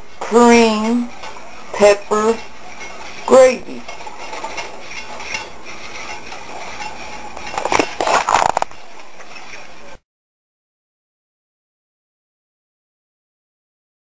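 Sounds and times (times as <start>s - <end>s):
utensil scraping a skillet: 0.0s - 10.0s
metal clatters: 0.7s - 9.7s.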